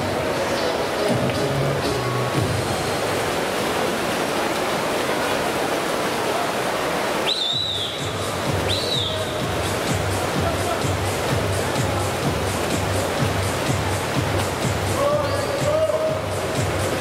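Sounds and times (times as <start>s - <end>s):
echoing crowd noise: 0.0s - 17.0s
high whistle: 7.2s - 9.4s.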